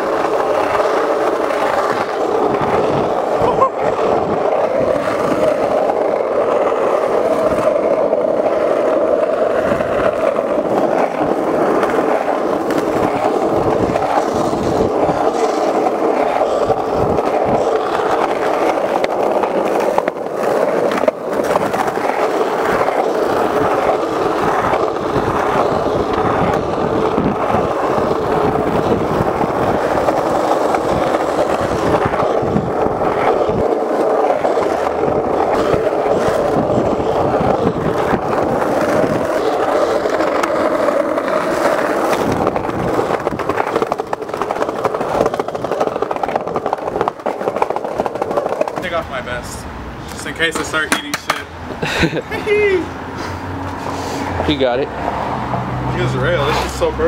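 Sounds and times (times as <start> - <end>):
skateboard wheels rolling on asphalt: 0.0 - 57.0
sharp clack: 50.1 - 51.5.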